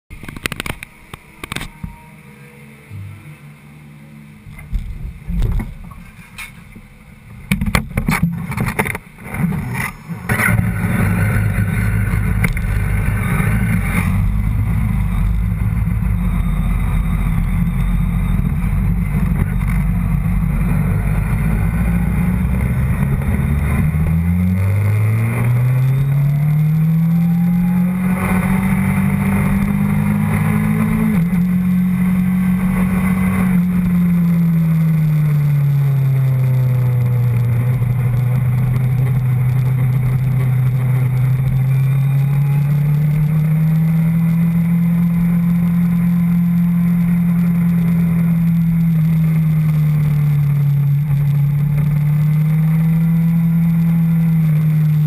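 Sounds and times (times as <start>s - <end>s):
motorcycle engine running: 0.1s - 55.0s
knocks and clatters: 7.5s - 10.6s.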